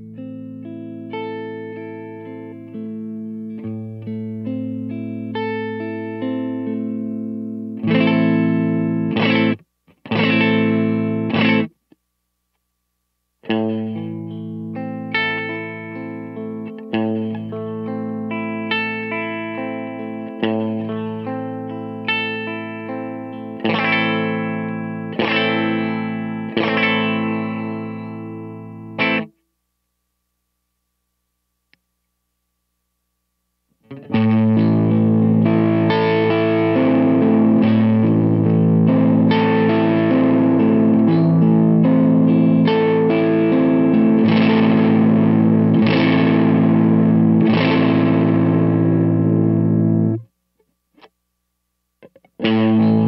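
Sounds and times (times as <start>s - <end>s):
overdriven electric guitar chords: 0.0s - 11.9s, 13.4s - 29.4s, 33.8s - 50.4s, 52.0s - 53.0s.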